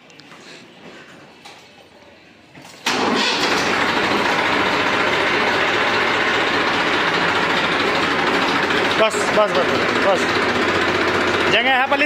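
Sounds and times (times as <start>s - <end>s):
tractor diesel engine starting: 2.8s - 12.0s.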